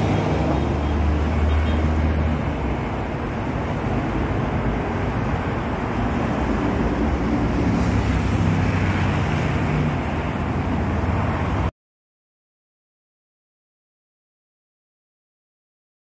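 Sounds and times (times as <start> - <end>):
dense expressway traffic: 0.0 - 11.7.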